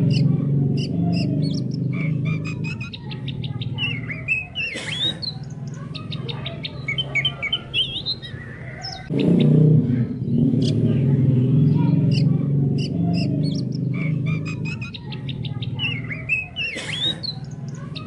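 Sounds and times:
bird singing whistles and chirps: 0:00.1 - 0:09.2.

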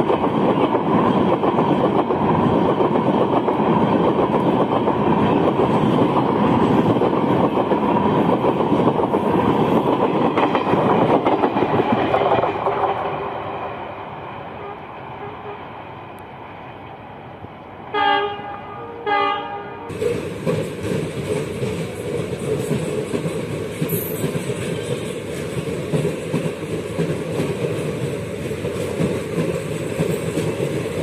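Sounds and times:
diesel train running: 0:00.0 - 0:31.0
locomotive horn blasts: 0:14.6 - 0:15.6, 0:17.9 - 0:19.9.

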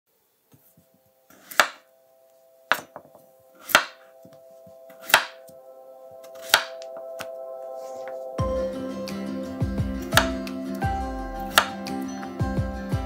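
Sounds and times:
knife slicing potatoes: 0:01.3 - 0:01.8, 0:03.6 - 0:04.0, 0:04.9 - 0:05.4, 0:06.3 - 0:06.8, 0:11.5 - 0:11.8.

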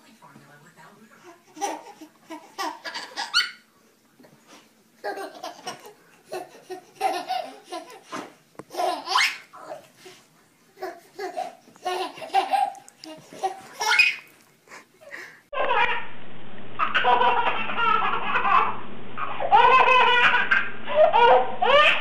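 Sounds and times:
baby laughing: 0:01.3 - 0:03.6, 0:05.0 - 0:09.9, 0:10.8 - 0:14.3, 0:15.2 - 0:16.0, 0:16.8 - 0:22.0
baby squealing: 0:09.1 - 0:09.5, 0:13.8 - 0:14.3, 0:16.8 - 0:22.0.

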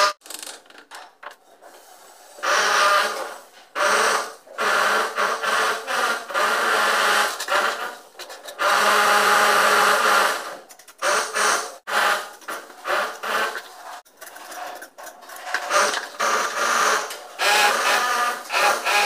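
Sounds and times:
hand tool scraping wet cement: 0:11.9 - 0:17.3.

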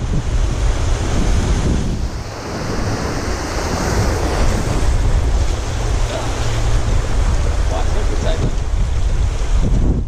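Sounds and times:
surf washing over rocks: 0:00.0 - 0:10.0
wind buffeting microphone: 0:00.0 - 0:10.0.

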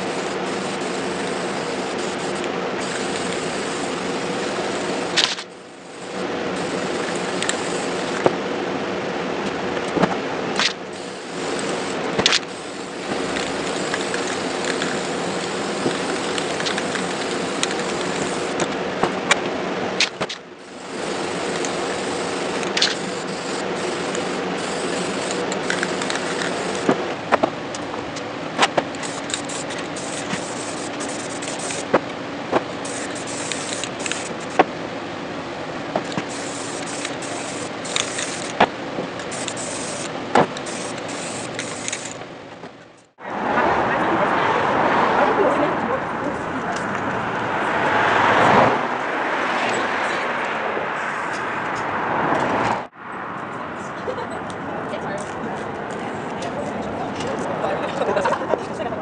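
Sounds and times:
spray paint can hissing: 0:00.0 - 0:08.4, 0:09.8 - 0:19.4, 0:20.0 - 0:34.8, 0:35.7 - 0:42.2
steady low hum: 0:00.0 - 0:59.0.

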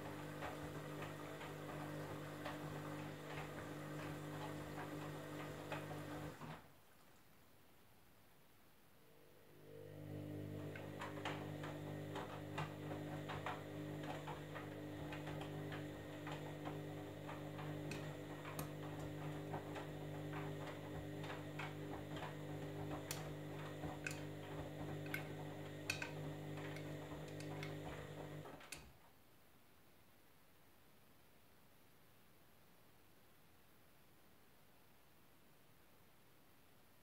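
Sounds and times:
washing machine drum hum: 0:00.0 - 0:06.6, 0:09.9 - 0:28.8.

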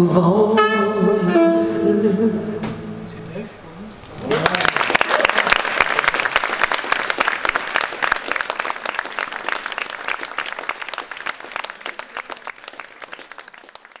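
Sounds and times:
audience applauding: 0:04.2 - 0:14.0.

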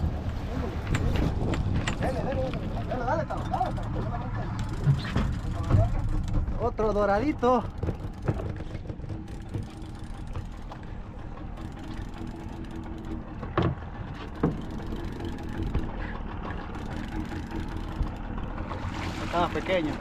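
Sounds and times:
boat engine rumble: 0:00.0 - 0:20.0
sharp knocks: 0:07.7 - 0:10.5.

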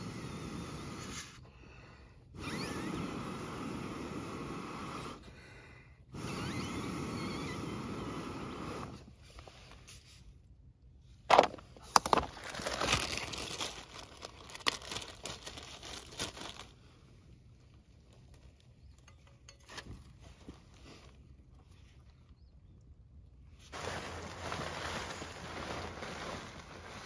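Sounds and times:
rustling handling noise: 0:11.1 - 0:22.4.

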